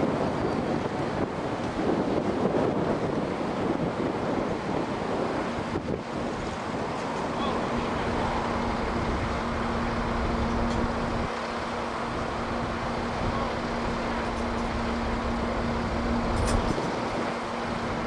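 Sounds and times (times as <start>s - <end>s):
wind rumble on microphone: 0.0s - 18.0s
engine humming: 5.2s - 18.0s.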